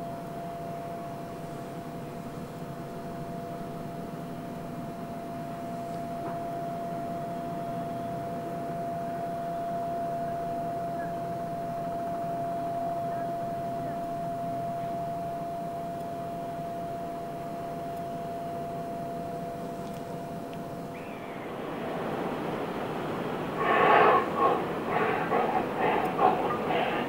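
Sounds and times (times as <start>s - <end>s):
ship engines droning: 20.3s - 27.0s
constant whine: 20.5s - 27.0s.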